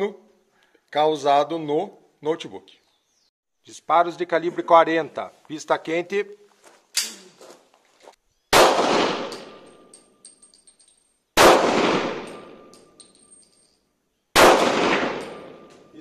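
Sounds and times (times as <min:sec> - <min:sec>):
pistol shots: 0:08.5 - 0:09.9, 0:11.4 - 0:12.9, 0:14.4 - 0:15.9
ringing echo: 0:11.7 - 0:13.8, 0:14.7 - 0:16.0.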